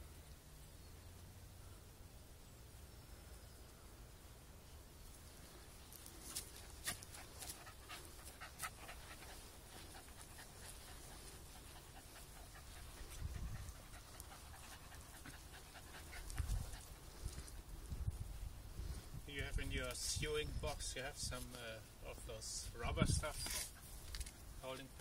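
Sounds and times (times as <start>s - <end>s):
dogs panting: 6.0s - 17.9s.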